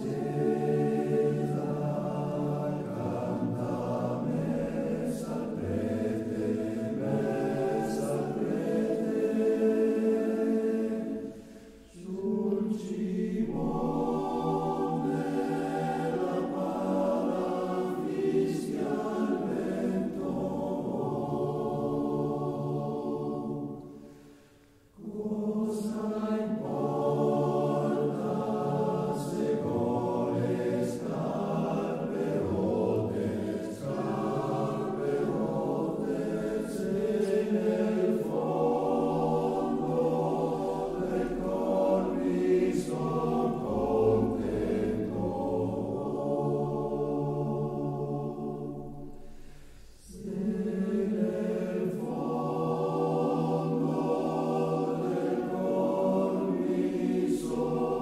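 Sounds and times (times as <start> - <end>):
choir singing: 0.0 - 58.0.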